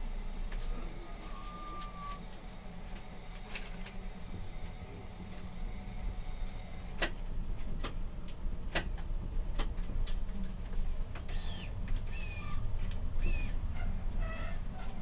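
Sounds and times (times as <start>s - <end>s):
wheels squealing on rails: 11.4s - 15.0s.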